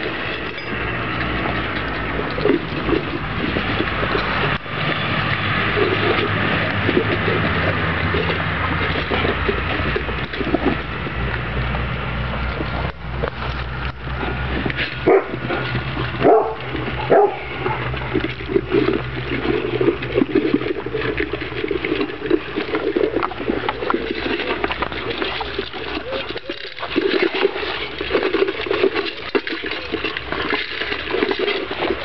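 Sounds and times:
kibble crunching: 0.0 - 32.0
puppies yelping: 15.0 - 18.2.

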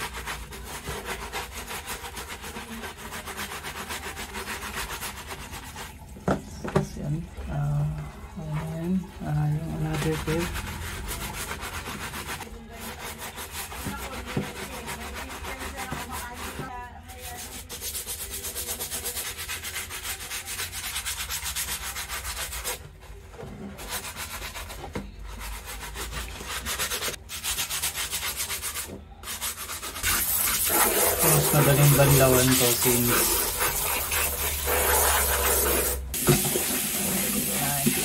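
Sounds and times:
brush scrubbing sneaker: 0.0 - 6.2, 7.5 - 38.0.

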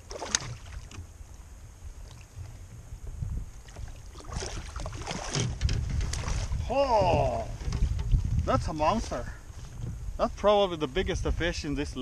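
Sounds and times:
faint water noise: 0.0 - 9.5
wind on microphone: 0.0 - 12.0.

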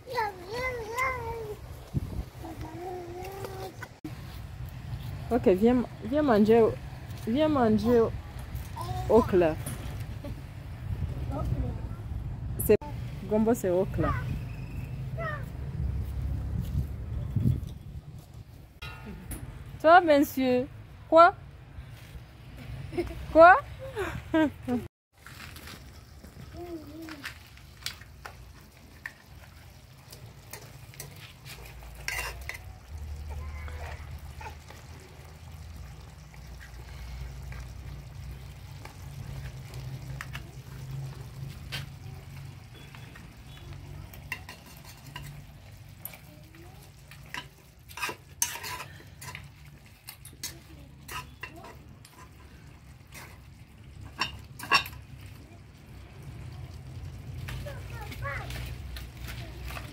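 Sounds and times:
metal spoon clinking on pot: 32.0 - 32.7, 44.2 - 45.5, 47.2 - 52.4, 54.1 - 55.1.

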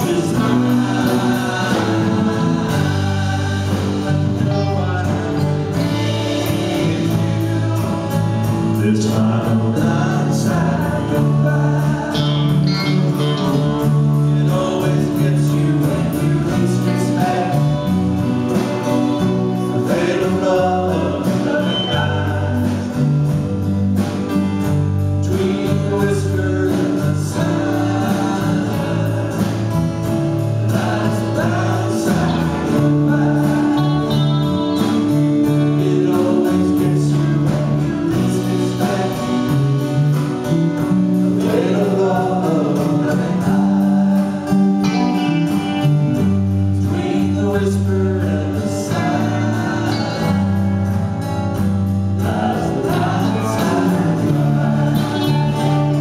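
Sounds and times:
person singing: 0.0 - 23.2, 30.7 - 40.3, 41.4 - 46.0, 46.8 - 50.8, 52.2 - 56.0
drum kit: 0.0 - 56.0
electric and acoustic guitars: 0.0 - 56.0
keyboard: 0.0 - 56.0.

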